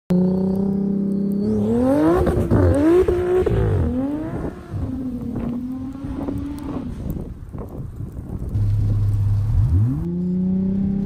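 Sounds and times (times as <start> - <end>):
turbocharged car engine revving: 0.1 - 7.1, 8.5 - 11.0.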